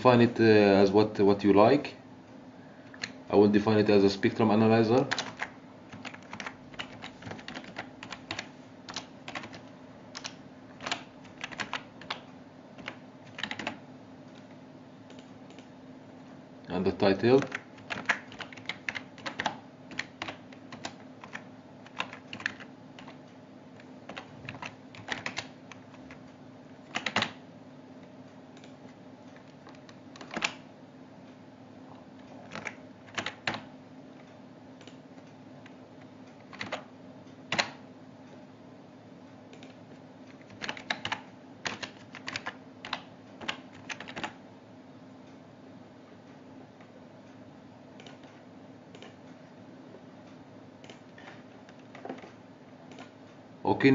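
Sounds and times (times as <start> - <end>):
steady low hum: 0.0 - 53.9
keyboard typing: 2.9 - 3.2, 4.9 - 15.7, 17.1 - 27.4, 28.0 - 30.7, 32.1 - 37.8, 39.5 - 44.4, 47.9 - 49.4, 50.8 - 53.3.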